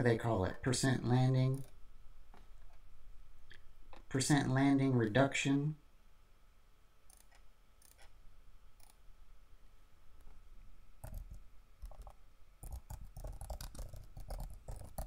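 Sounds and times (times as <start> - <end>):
keyboard keystrokes: 11.0 - 15.0.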